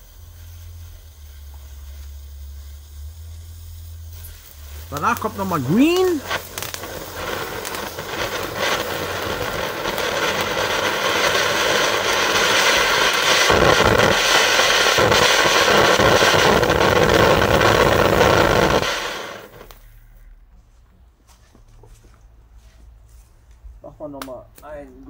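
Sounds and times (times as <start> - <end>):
firework fountain hissing: 0.0 - 20.0.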